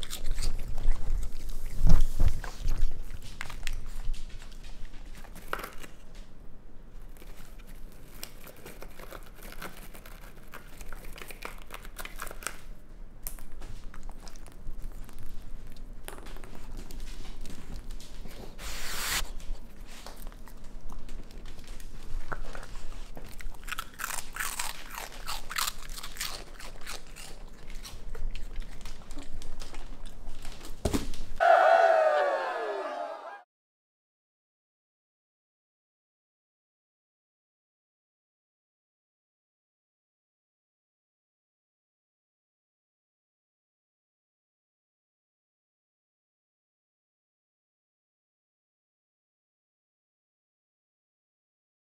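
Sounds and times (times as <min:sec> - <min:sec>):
raccoon crunching cheese puffs: 0:00.0 - 0:31.3.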